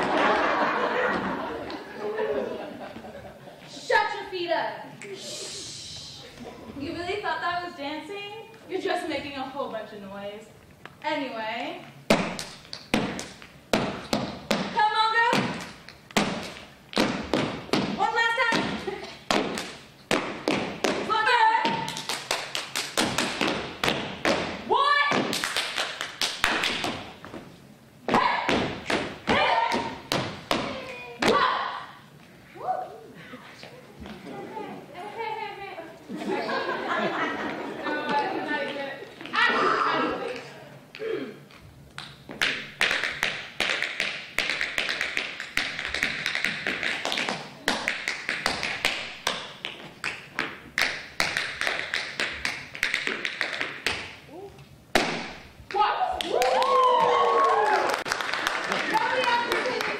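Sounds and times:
tap shoes on wooden floor: 0:12.1 - 0:22.0
dancers stomping and clapping: 0:12.1 - 0:27.4, 0:28.1 - 0:31.5, 0:42.0 - 0:54.2, 0:54.9 - 0:59.9
people shouting: 0:29.3 - 0:29.9, 0:31.3 - 0:31.9.

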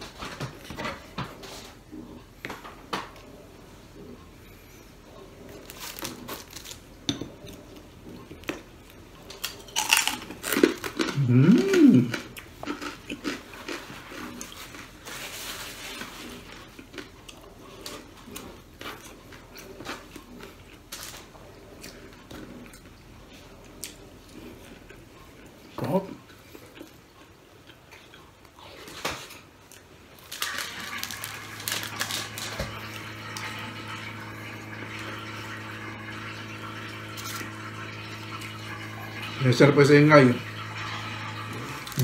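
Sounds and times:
chewing and mouth noises: 0:05.1 - 0:33.6.

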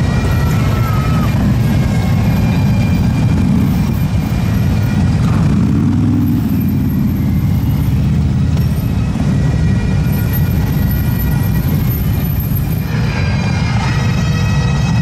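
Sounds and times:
motorcycle engines rumbling: 0:00.0 - 0:15.0.

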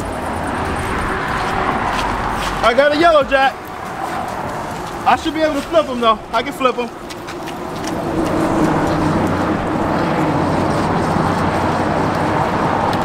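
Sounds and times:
low engine hum: 0:00.0 - 0:13.0
passing road traffic rushing: 0:00.0 - 0:13.0.

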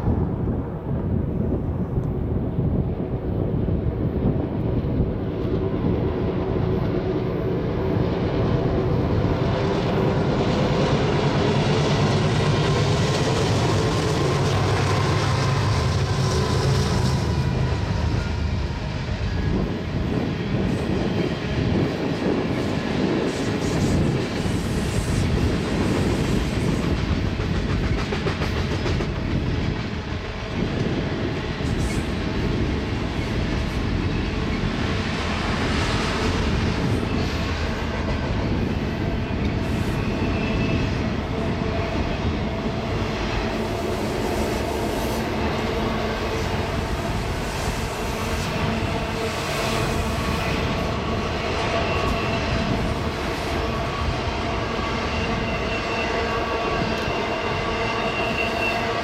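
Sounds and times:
diesel locomotive engines droning: 0:00.0 - 0:59.0
train cars clattering on rails: 0:20.5 - 0:42.2.

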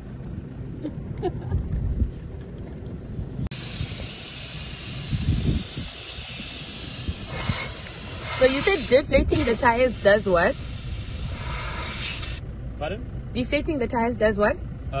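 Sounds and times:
wind rumbling on microphone: 0:00.0 - 0:12.4
air hissing from tyre valve: 0:03.4 - 0:12.4.

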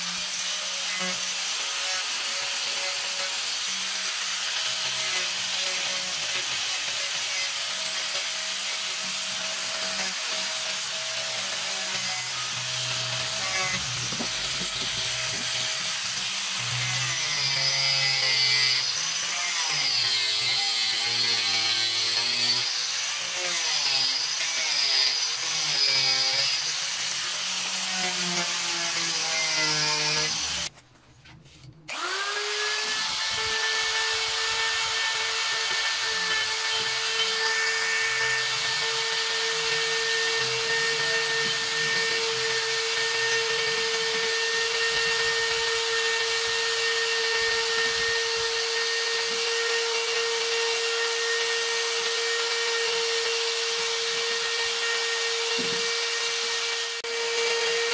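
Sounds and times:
angle grinder sanding wood: 0:00.0 - 0:30.7, 0:31.9 - 0:57.9
rotary tool whining: 0:00.1 - 0:30.7.

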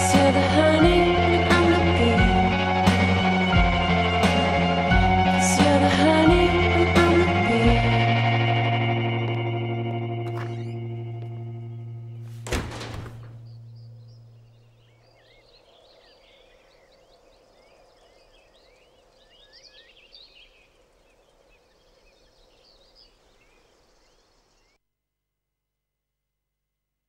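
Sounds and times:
birds chirping and twittering: 0:10.3 - 0:24.8
sharp thump: 0:12.4 - 0:13.6.

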